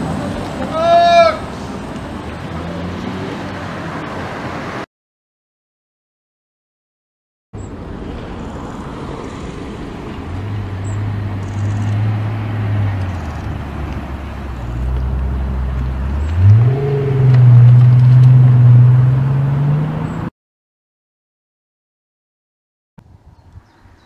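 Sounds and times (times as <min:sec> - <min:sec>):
tyre and road noise: 0:00.0 - 0:04.9, 0:07.6 - 0:20.3
car engine accelerating: 0:01.4 - 0:04.8, 0:07.8 - 0:20.3.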